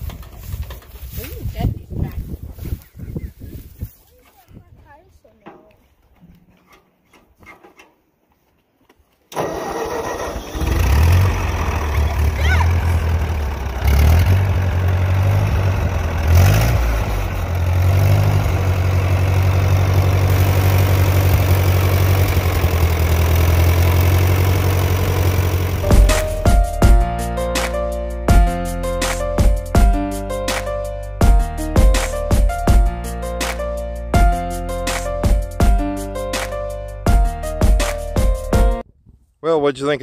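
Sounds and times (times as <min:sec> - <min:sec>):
tractor engine starting and running: 0:00.0 - 0:02.9, 0:09.2 - 0:38.8
music: 0:25.8 - 0:38.8.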